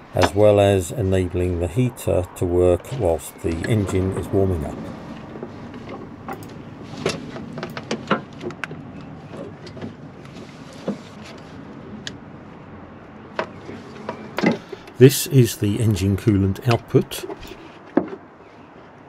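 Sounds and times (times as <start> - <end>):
soft rustling handling noise: 9.0 - 12.0.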